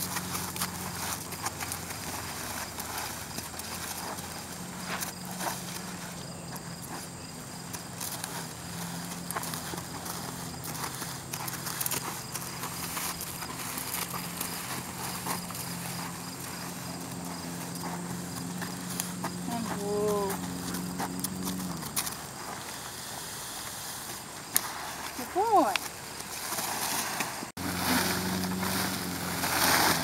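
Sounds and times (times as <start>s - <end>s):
horse hoofbeats on dirt: 0.0s - 22.9s
person's footsteps: 0.0s - 30.0s.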